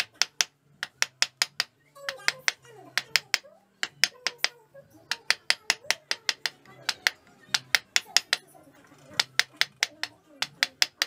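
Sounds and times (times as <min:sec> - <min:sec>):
chisel chopping into wood: 0:00.0 - 0:04.5, 0:05.1 - 0:08.4.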